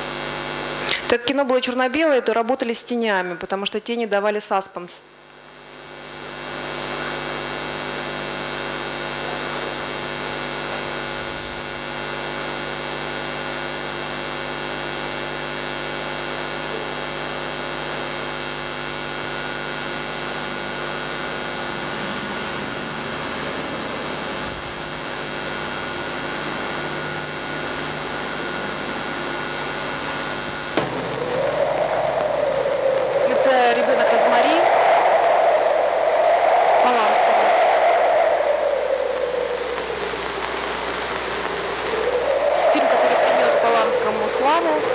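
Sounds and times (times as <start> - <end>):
horror film soundtrack drone: 18.2 - 44.9.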